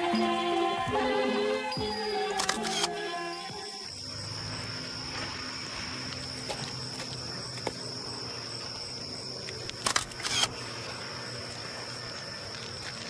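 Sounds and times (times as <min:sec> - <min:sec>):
insects chirring: 0:00.0 - 0:13.0
short noisy bursts: 0:09.8 - 0:10.6.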